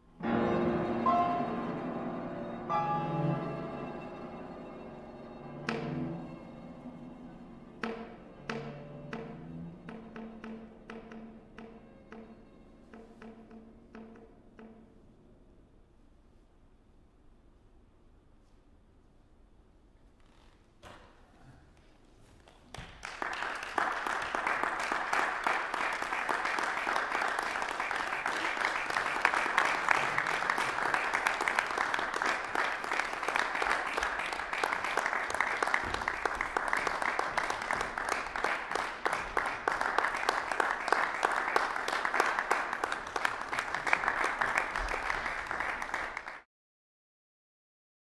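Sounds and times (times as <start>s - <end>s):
audience applauding: 22.7s - 46.4s.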